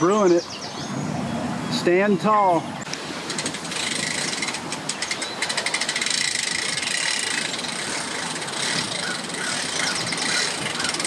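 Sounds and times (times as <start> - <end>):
hand-cranked winch ratcheting: 3.3 - 11.0.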